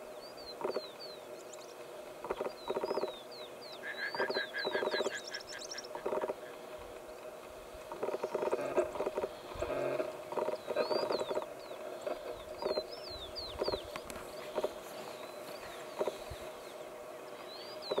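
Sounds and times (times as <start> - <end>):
small birds chirping: 0.0 - 18.0
rattling alarm calls: 2.2 - 3.2, 3.9 - 7.0, 7.8 - 12.9.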